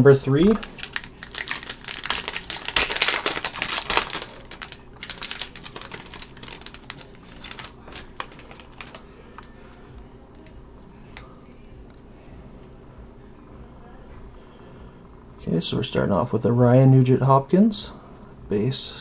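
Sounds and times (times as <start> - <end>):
cards rustling: 0.5 - 9.5
wrapper tearing and crinkling: 0.5 - 9.5.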